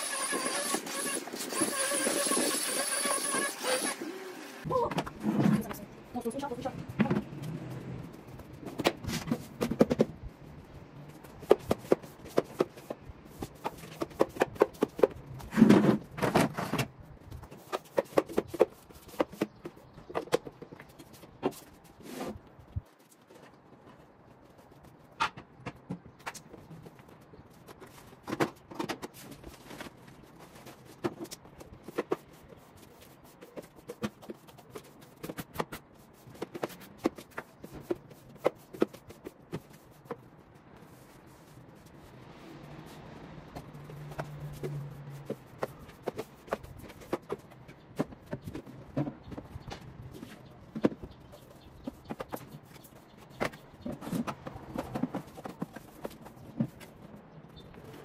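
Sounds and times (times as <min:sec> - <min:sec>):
objects knocking and scraping: 0:08.3 - 0:10.3, 0:11.2 - 0:22.4, 0:43.5 - 0:58.0.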